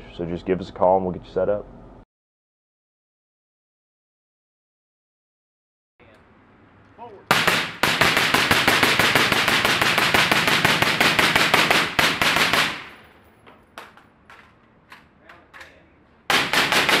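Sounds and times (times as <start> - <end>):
rapid rifle gunfire: 7.3 - 13.0, 16.3 - 17.0.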